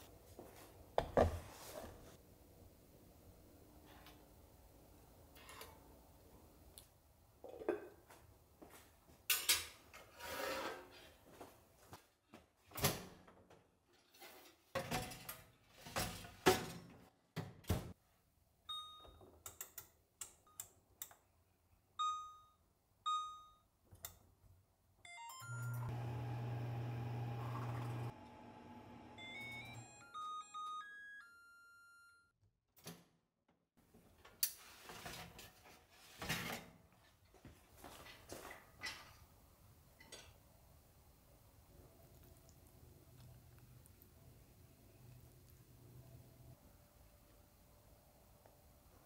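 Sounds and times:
oven running with low hum: 0:25.6 - 0:29.7
oven control panel beeps: 0:29.1 - 0:30.8
dishes and utensils clattering: 0:40.0 - 0:40.4.

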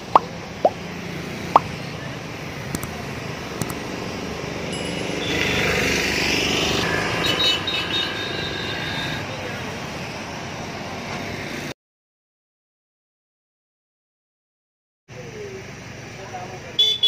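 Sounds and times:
motor vehicle passing: 0:00.0 - 0:11.6
street traffic noise: 0:00.0 - 0:11.8, 0:15.1 - 0:17.0
faint clicks: 0:02.7 - 0:03.0.

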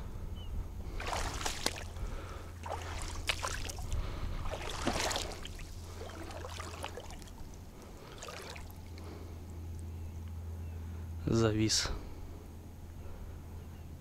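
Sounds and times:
shallow water sloshing and splashing: 0:00.8 - 0:09.3.

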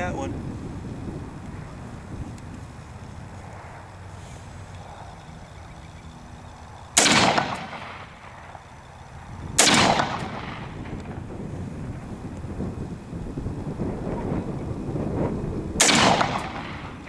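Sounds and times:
rifle shots with echo: 0:06.9 - 0:08.6, 0:09.6 - 0:11.2, 0:15.8 - 0:17.0.

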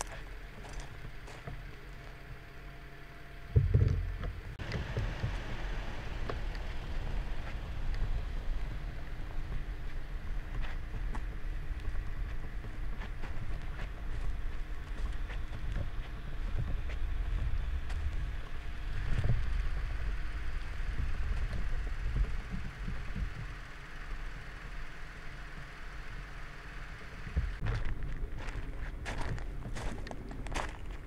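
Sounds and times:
footsteps crunching on ash: 0:00.0 - 0:02.2, 0:09.5 - 0:19.6, 0:27.5 - 0:31.0
wind rumble on microphone: 0:03.5 - 0:23.8.

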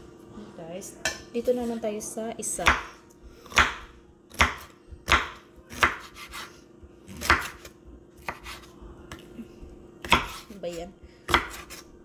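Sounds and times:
knife slicing bell pepper: 0:03.5 - 0:08.7, 0:10.0 - 0:10.6, 0:11.3 - 0:11.9.

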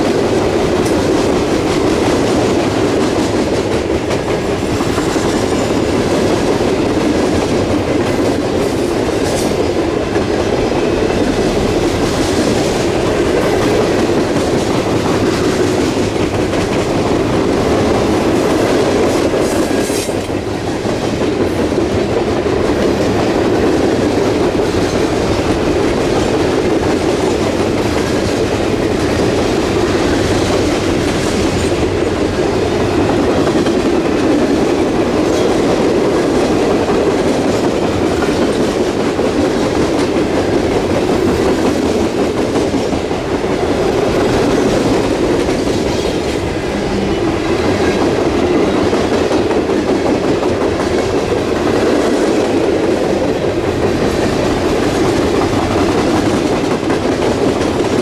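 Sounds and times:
wheels clacking over rail joints: 0:00.0 - 0:58.0.

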